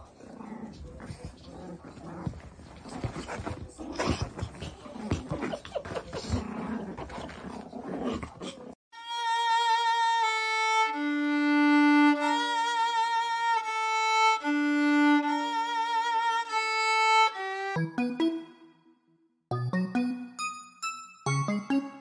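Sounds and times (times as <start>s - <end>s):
violin playing slow melody: 9.0s - 18.4s.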